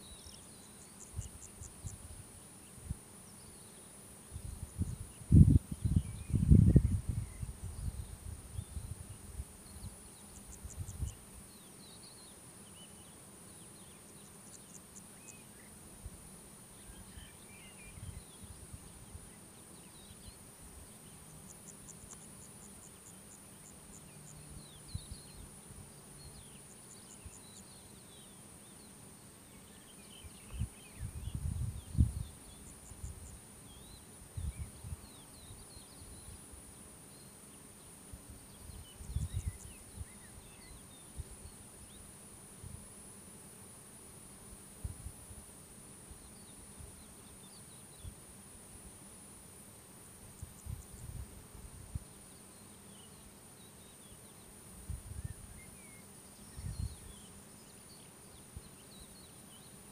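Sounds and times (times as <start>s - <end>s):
rapid clicking insect chirps: 0.0s - 9.0s, 9.6s - 15.8s, 16.7s - 42.3s, 49.6s - 51.3s
insects buzzing: 0.0s - 59.9s
wind buffeting microphone: 4.4s - 9.0s, 31.0s - 32.3s.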